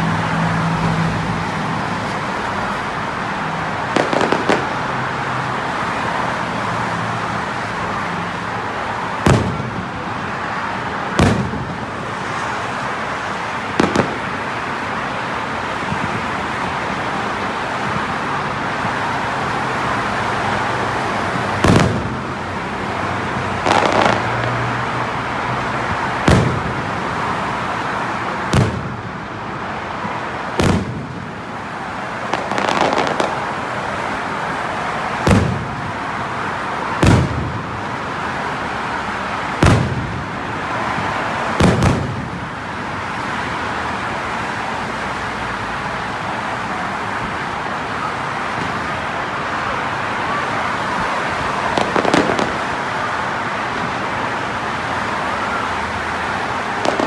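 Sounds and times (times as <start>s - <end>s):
firework bursts: 3.8s - 5.0s, 9.2s - 10.0s, 11.1s - 12.5s, 13.7s - 14.5s, 21.5s - 22.3s, 23.6s - 24.6s, 26.2s - 27.0s, 28.4s - 29.2s, 30.5s - 31.6s, 32.2s - 33.8s, 35.1s - 35.9s, 37.0s - 37.8s, 39.5s - 40.4s, 41.5s - 42.5s, 51.6s - 52.9s, 56.8s - 57.0s.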